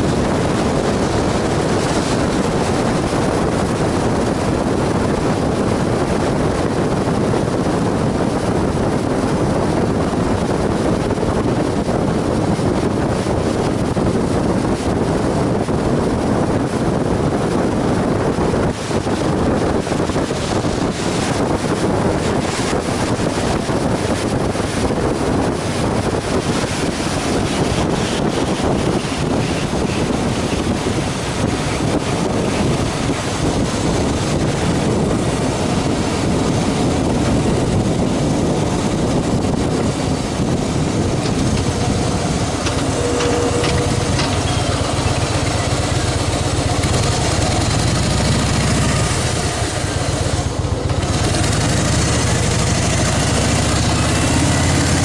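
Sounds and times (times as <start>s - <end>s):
wind noise on microphone: 0.0s - 55.0s
motorcycle engine running: 18.3s - 55.0s.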